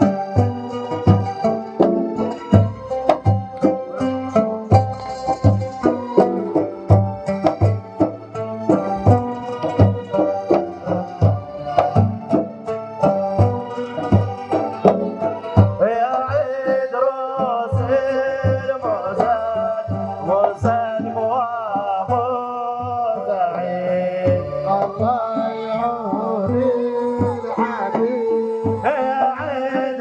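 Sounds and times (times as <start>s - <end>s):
drums beating a steady rhythm: 0.0s - 30.0s
man singing ornamented melody: 15.0s - 30.0s.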